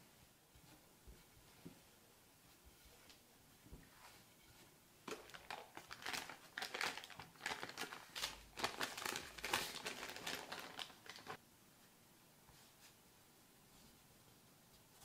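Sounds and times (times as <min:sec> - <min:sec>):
baking paper crinkling: 0:05.1 - 0:11.4.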